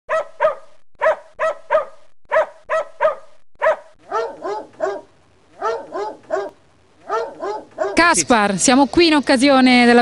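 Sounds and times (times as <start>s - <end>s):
dog barking: 0.1s - 8.1s.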